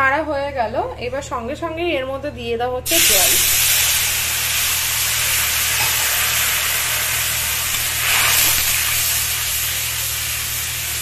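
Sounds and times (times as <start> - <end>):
water sizzling in hot oil: 2.9 - 11.0.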